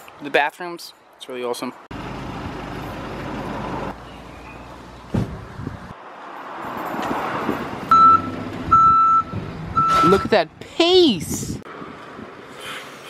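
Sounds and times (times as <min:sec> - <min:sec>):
bus engine running: 0:01.9 - 0:05.9
reversing alarm beeps: 0:07.9 - 0:10.3.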